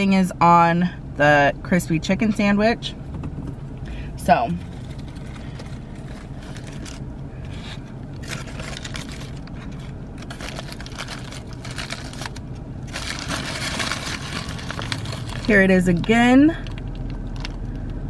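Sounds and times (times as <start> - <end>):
foil wrapper crinkling: 4.6 - 18.0.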